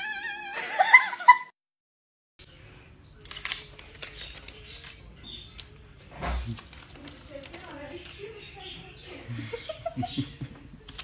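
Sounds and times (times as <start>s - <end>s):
paper banknotes rustling: 2.5s - 5.8s, 6.4s - 9.2s, 10.7s - 11.0s.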